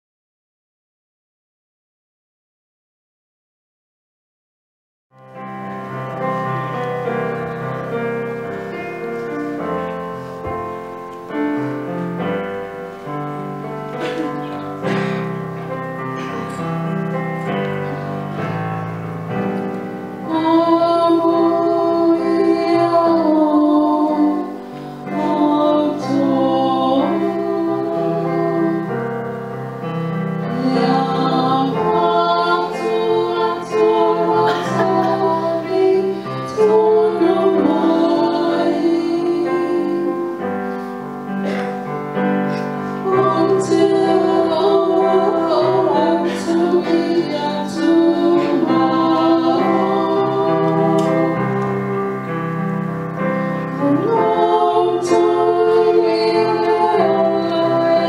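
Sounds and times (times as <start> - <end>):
electric keyboard hymn accompaniment: 5.2 - 58.0
woman singing through microphone: 20.2 - 29.3, 30.4 - 40.6, 42.5 - 52.3, 53.6 - 58.0.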